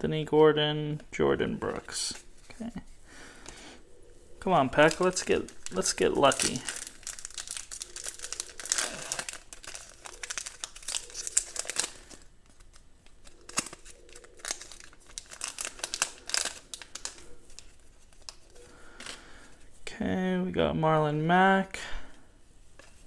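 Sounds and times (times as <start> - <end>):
foil wrapper crinkling and tearing: 4.7 - 19.2.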